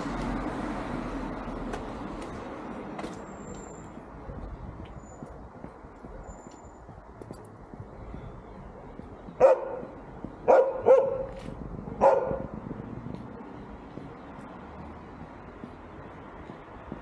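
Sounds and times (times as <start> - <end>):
dog barking: 9.4 - 11.4, 12.0 - 12.5.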